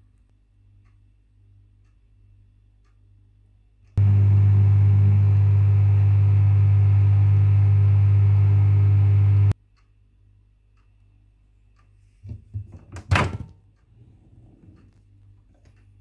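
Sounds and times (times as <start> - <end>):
microwave oven humming: 4.0 - 9.6.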